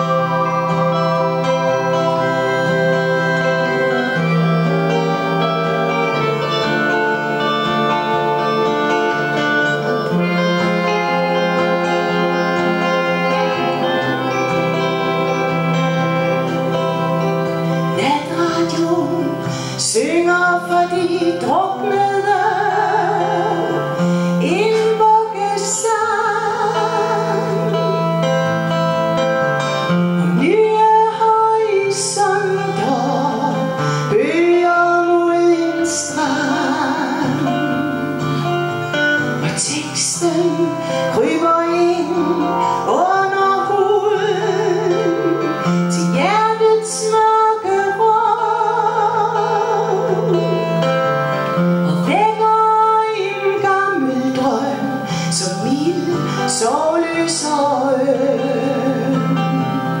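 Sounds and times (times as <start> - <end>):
electric guitar: 0.0 - 60.0
woman singing with vibrato: 0.0 - 60.0.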